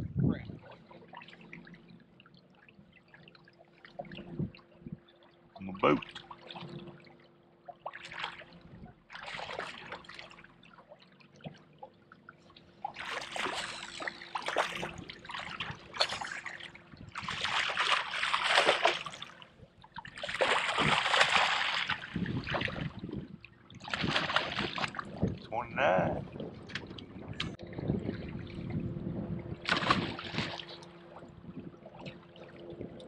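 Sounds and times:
water splashing: 0:00.5 - 0:33.0
fish thrashing at water surface: 0:13.0 - 0:19.4, 0:20.0 - 0:23.0, 0:23.8 - 0:25.1, 0:29.6 - 0:30.8.

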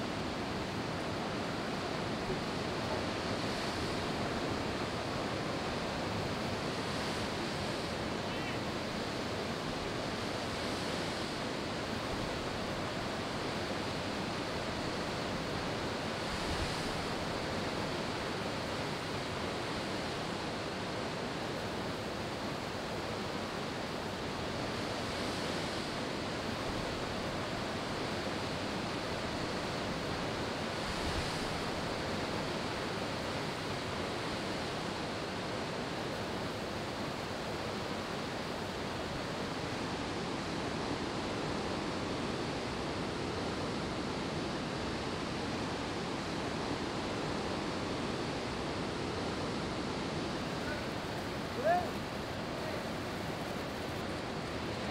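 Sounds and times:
ocean surf breaking: 0:49.9 - 0:54.9.

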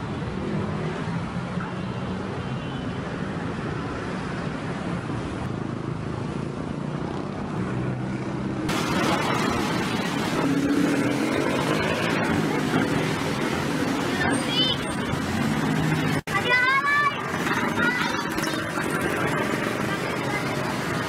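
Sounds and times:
road noise: 0:00.0 - 0:21.0
traffic engines running and idling: 0:00.0 - 0:21.0
loud bright noise: 0:08.7 - 0:21.0.

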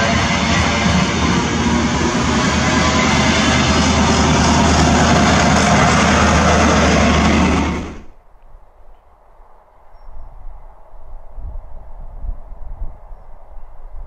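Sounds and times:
low diesel engine drone: 0:00.0 - 0:08.2
train wheels roaring on rails: 0:00.0 - 0:08.2.

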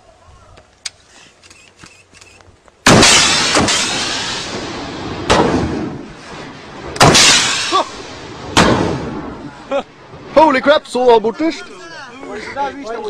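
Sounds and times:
rocket launcher blasts echoing: 0:02.9 - 0:09.4.

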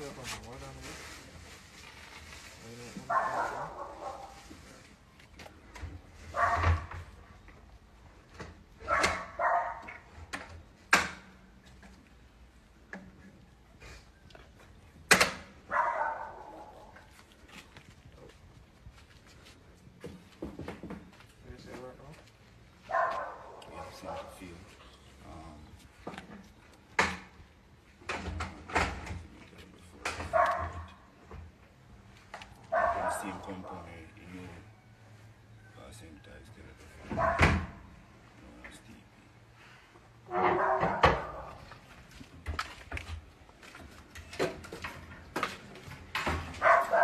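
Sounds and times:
dog barking: 0:03.1 - 0:04.5, 0:06.3 - 0:07.0, 0:08.8 - 0:10.0, 0:15.7 - 0:17.0, 0:22.9 - 0:24.5, 0:30.2 - 0:31.0, 0:32.7 - 0:33.9, 0:37.0 - 0:37.8, 0:40.3 - 0:41.6, 0:46.6 - 0:47.0.

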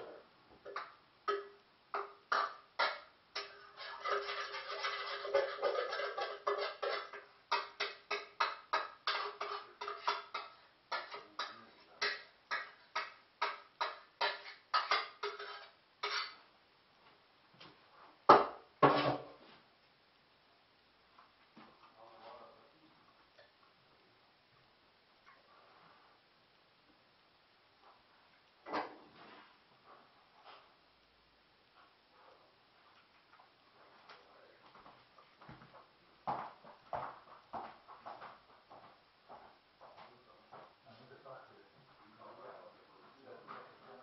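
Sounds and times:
metal pots clattering in sink: 0:00.6 - 0:16.4.

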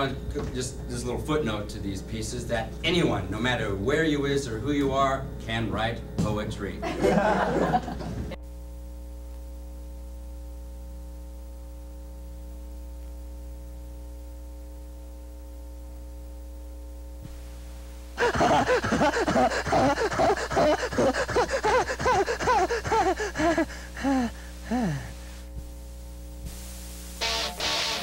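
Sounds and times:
electrical hum: 0:00.0 - 0:28.0
man screaming and gasping: 0:18.2 - 0:25.3.

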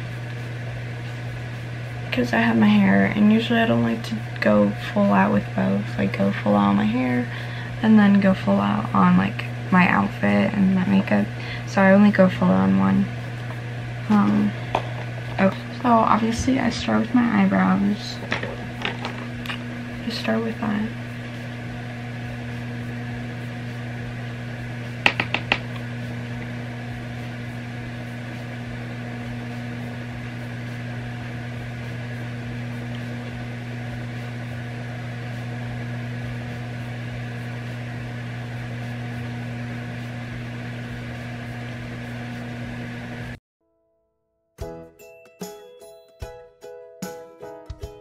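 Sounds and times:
low electrical hum: 0:00.0 - 0:43.4.

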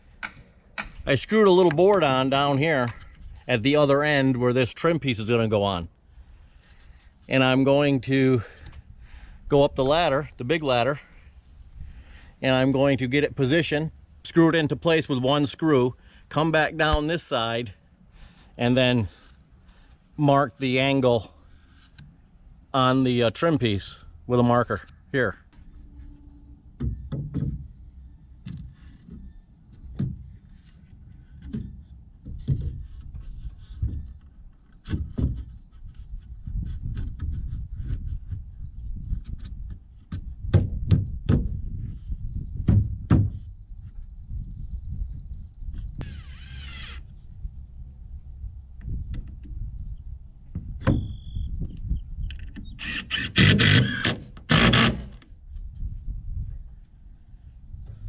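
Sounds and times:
knocks and handling: 0:25.5 - 0:35.6
cordless drill driving screw: 0:46.0 - 0:47.1, 0:52.7 - 0:55.2.

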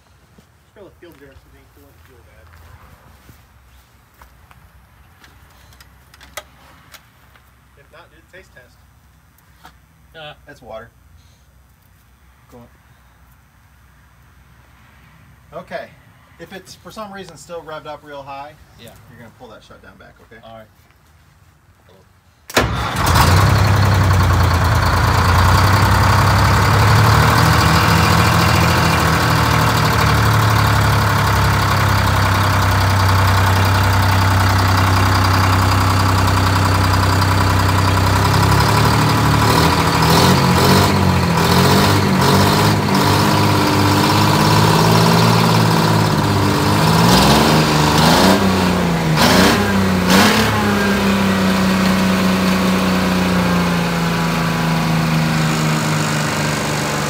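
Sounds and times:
diesel truck engine running and revving: 0:22.6 - 0:57.0.

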